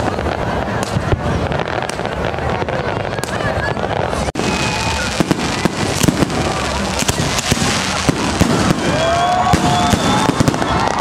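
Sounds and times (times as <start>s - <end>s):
firework whistling: 0.0s - 11.0s
fireworks bangs and crackles: 0.0s - 11.0s.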